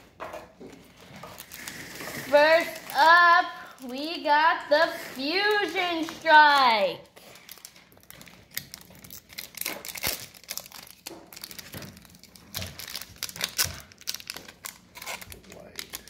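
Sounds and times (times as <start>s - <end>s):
foil pack crinkling and tearing: 1.2s - 4.2s, 7.0s - 16.0s.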